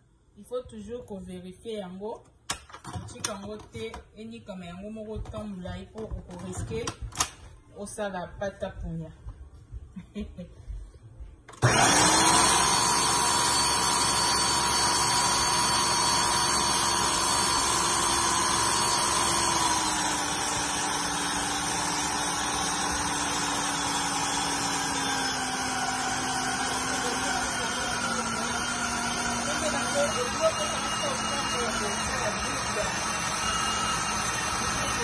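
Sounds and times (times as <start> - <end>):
blender motor whine: 11.6 - 35.0.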